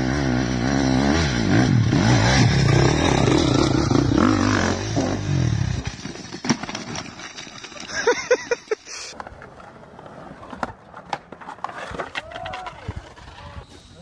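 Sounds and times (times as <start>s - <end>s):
motor engine revving: 0.0s - 5.9s.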